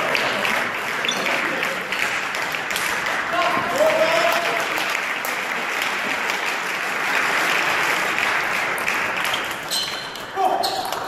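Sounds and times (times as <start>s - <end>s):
spectators clapping: 0.0s - 11.0s.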